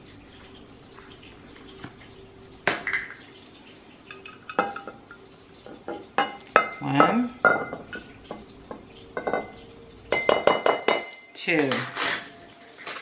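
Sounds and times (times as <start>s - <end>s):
glass jar clinking: 2.6s - 3.1s, 5.9s - 13.0s.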